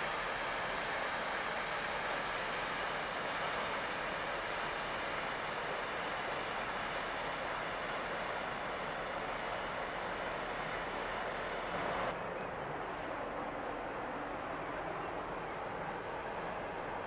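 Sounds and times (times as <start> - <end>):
rushing water from bow wave: 0.0 - 12.1.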